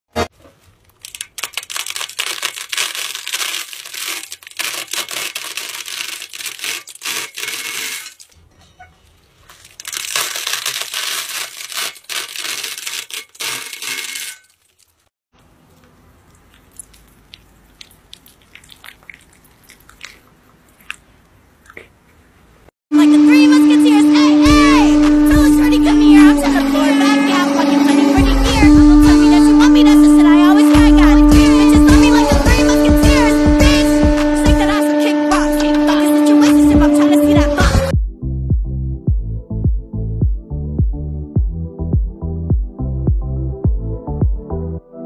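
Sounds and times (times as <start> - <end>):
dry spaghetti crunching and snapping: 0.5 - 8.4, 9.4 - 22.0.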